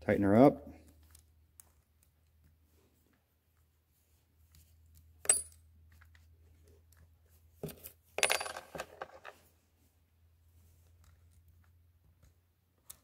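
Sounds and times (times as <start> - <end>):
metal parts clinking on wood: 7.7 - 9.3.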